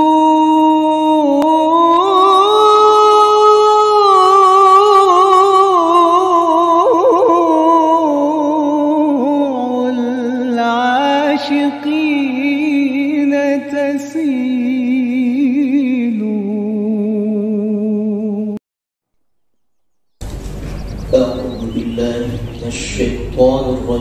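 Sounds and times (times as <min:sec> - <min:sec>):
person singing melismatic notes: 0:00.0 - 0:18.5.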